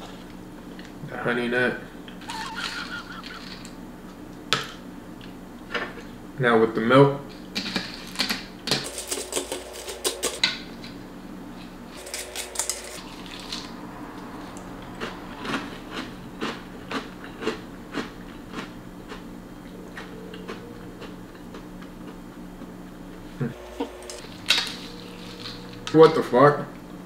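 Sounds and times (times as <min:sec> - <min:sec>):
chewing crunchy cereal: 0:14.8 - 0:22.7, 0:24.0 - 0:26.0.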